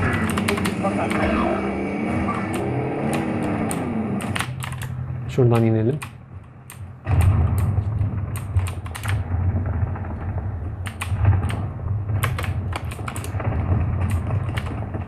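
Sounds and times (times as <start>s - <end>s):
keyboard keys clacking: 0.0s - 1.4s, 2.3s - 7.6s, 12.2s - 13.4s
low rumble: 0.0s - 15.0s.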